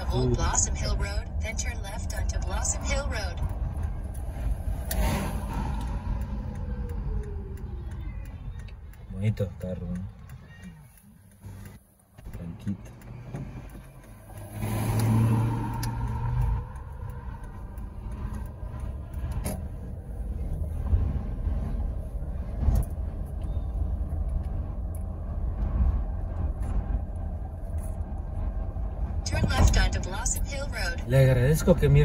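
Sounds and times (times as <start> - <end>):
engine and road rumble: 0.0 - 32.0.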